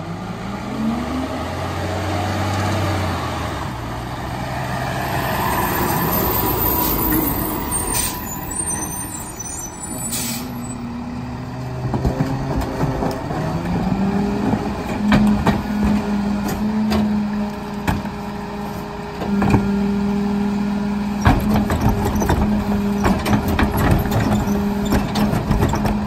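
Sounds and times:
garbage truck diesel engine running: 3.3 - 26.0
air brake hisses: 6.4 - 10.6.

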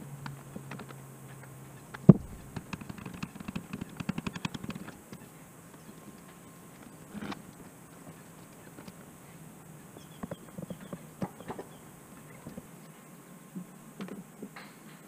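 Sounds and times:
small clicks and rattles: 0.2 - 9.1
sharp knock: 2.1 - 2.4.

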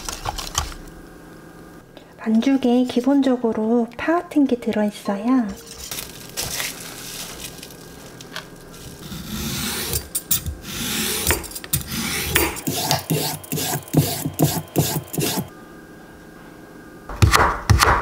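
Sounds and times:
peeler scraping a carrot: 9.0 - 15.5.

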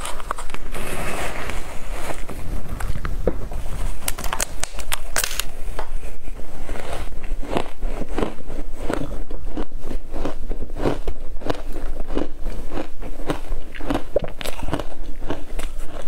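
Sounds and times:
chewing ice crunches: 6.7 - 16.0.

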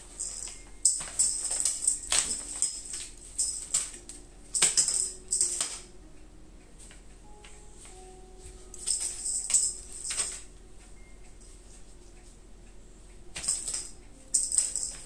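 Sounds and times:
toy jingling and rustling paper: 0.0 - 5.9, 8.8 - 10.5, 13.4 - 15.0.

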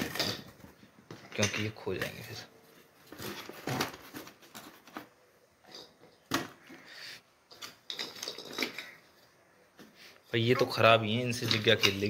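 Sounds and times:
cardboard rustling: 2.6 - 5.3.

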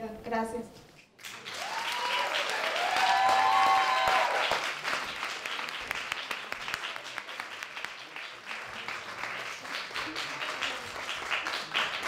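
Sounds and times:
audience applauding: 1.2 - 12.0
cheers: 1.3 - 4.8.

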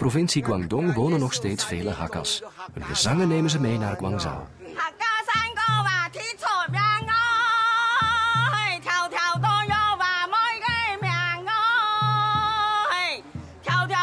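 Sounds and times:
high voice singing folk song: 0.0 - 14.0.

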